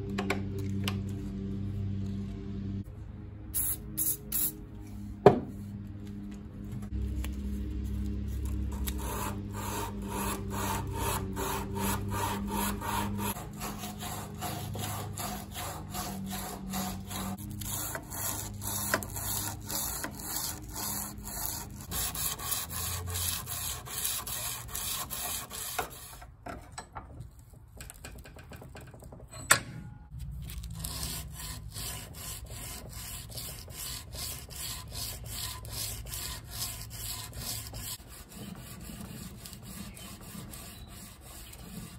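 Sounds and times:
sandpaper sanding a steel blade: 7.4s - 26.2s, 30.5s - 41.9s.

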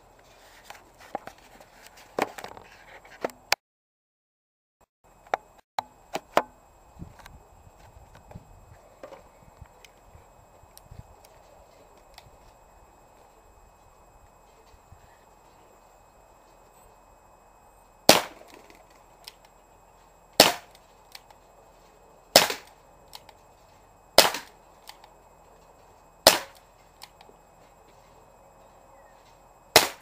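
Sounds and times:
air pistol pops: 20.4s - 21.2s, 22.4s - 23.3s, 24.2s - 25.0s, 26.3s - 27.2s, 29.8s - 30.0s.

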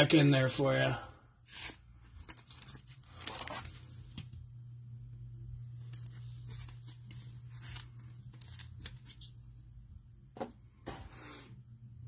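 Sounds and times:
steady low hum: 0.0s - 12.0s
card handling: 1.5s - 4.4s, 5.7s - 9.6s.

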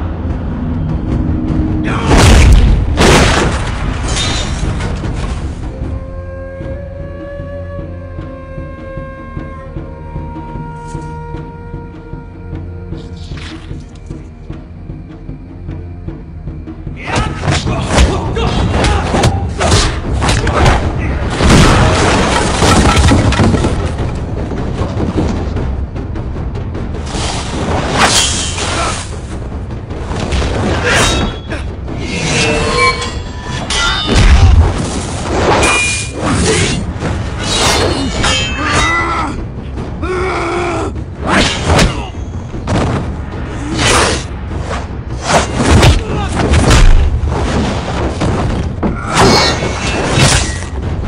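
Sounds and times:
film score music: 0.0s - 51.0s
people shouting: 17.0s - 21.2s.

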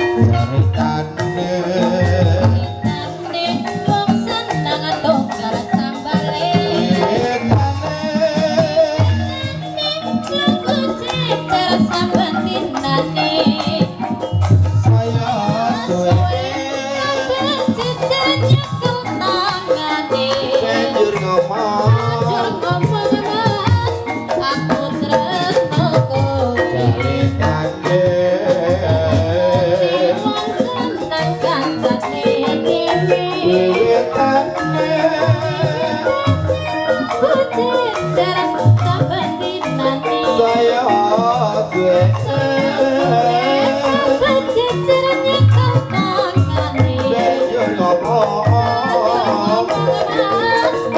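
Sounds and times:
woman singing wavering melody: 0.9s - 14.4s, 15.3s - 27.8s, 29.5s - 50.9s.

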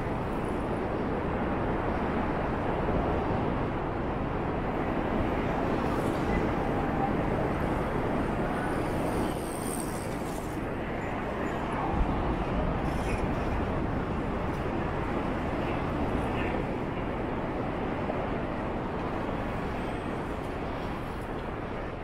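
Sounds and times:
wind across microphone: 0.0s - 22.0s
bicycle tyres rolling on path: 7.6s - 10.7s.

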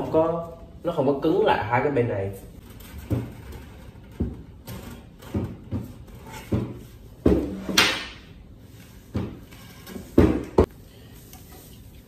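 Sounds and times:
table legs knocking on floor: 5.2s - 8.2s, 10.1s - 10.7s.

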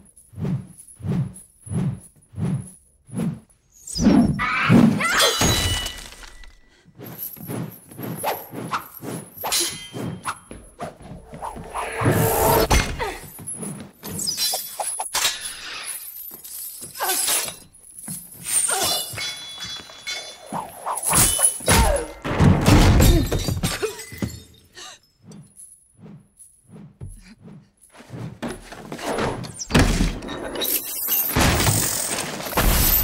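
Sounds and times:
glass breaking: 5.3s - 6.5s, 30.6s - 33.0s.

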